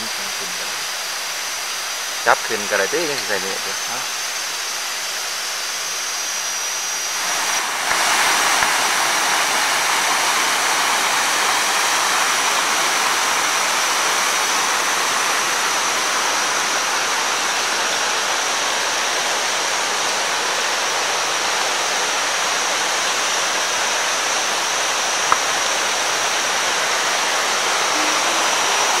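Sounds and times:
waterfall rushing over rocks: 0:00.0 - 0:29.0
thin high steady tone: 0:24.5 - 0:29.0.

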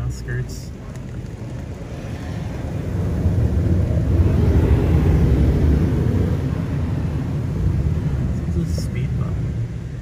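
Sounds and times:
car wash machine rumble: 0:01.4 - 0:10.0.

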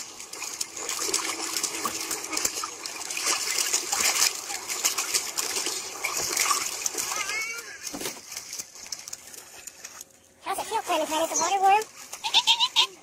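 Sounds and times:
water splashing in plastic pool: 0:00.0 - 0:13.0.

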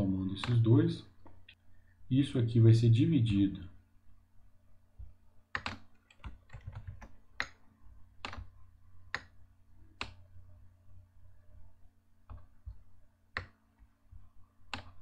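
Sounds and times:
faint steady hum: 0:00.0 - 0:15.0
computer keyboard keystrokes: 0:05.5 - 0:07.6, 0:08.2 - 0:08.5, 0:14.7 - 0:15.0.

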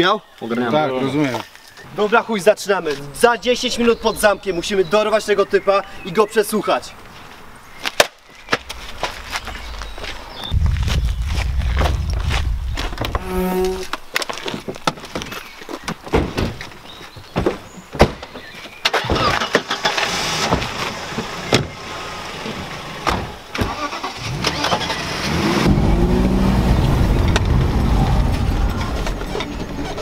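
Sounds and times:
engine revving: 0:08.7 - 0:14.0, 0:23.9 - 0:29.5
car engines running: 0:19.8 - 0:30.0.

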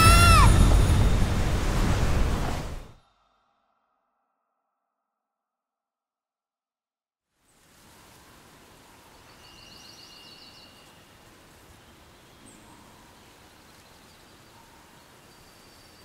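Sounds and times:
background hiss: 0:07.4 - 0:16.0
faint high bird chirps: 0:09.2 - 0:11.1.

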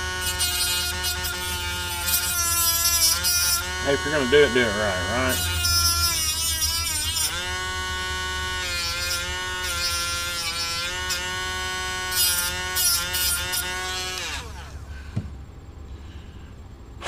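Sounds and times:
rotary tool grinding metal: 0:00.0 - 0:14.8
thump: 0:15.2 - 0:15.4.

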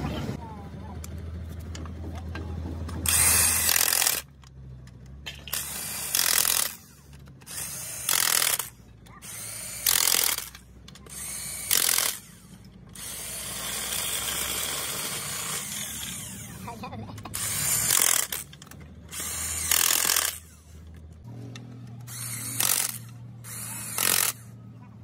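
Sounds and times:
impact wrench hammering bolts: 0:01.7 - 0:16.6, 0:17.2 - 0:21.1, 0:21.9 - 0:24.5.

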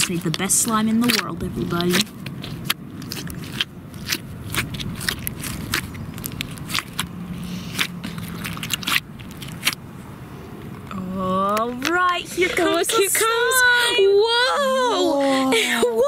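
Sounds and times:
slime squelching and popping: 0:00.0 - 0:09.8.

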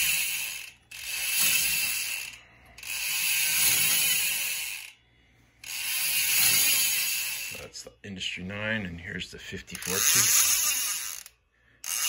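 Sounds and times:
bicycle hub ratcheting buzz: 0:00.0 - 0:05.0, 0:05.6 - 0:07.7, 0:09.7 - 0:12.0.

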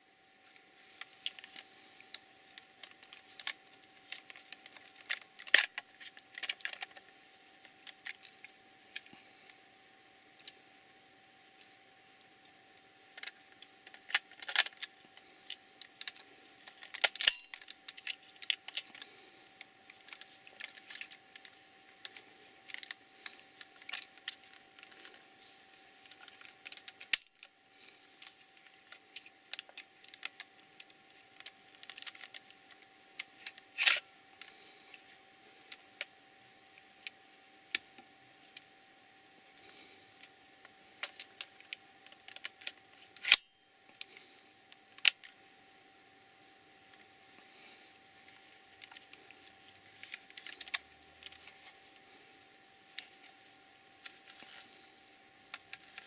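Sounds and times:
plastic parts clicking and tapping: 0:13.1 - 0:19.0, 0:26.0 - 0:27.5, 0:28.2 - 0:35.0, 0:41.0 - 0:44.1.

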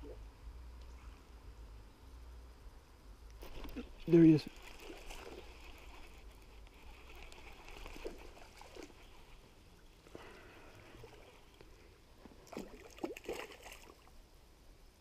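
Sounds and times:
faint trickling water: 0:03.5 - 0:14.3.

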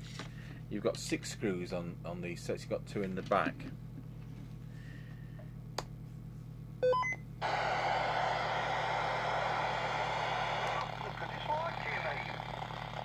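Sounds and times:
radio receiver hiss: 0:07.4 - 0:13.0.

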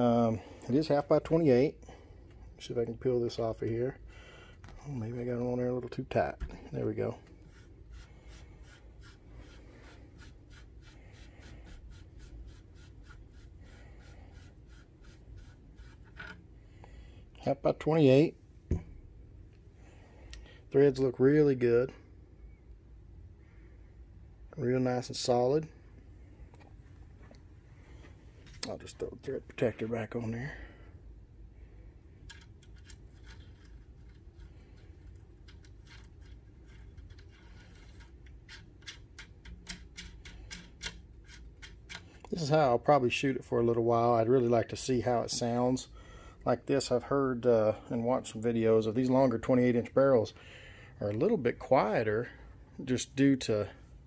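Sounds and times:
small metal clicks and scrapes: 0:32.2 - 0:42.3.

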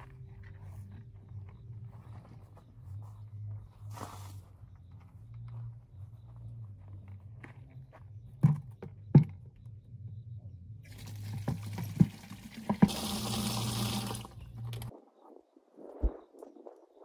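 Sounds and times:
water running into plastic bucket: 0:10.9 - 0:14.9.

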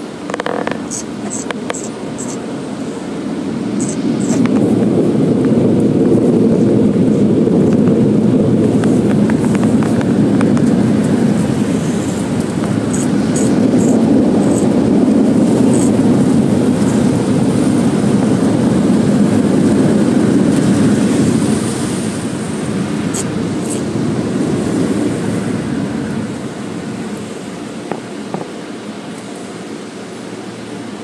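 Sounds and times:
car wash machinery rumbling: 0:00.0 - 0:31.0.

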